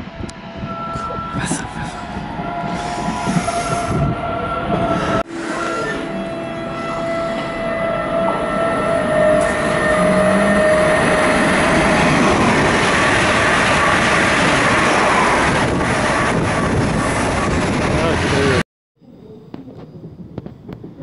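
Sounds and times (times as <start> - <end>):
train wheels rushing on rail: 0.1 - 6.0, 8.2 - 18.6.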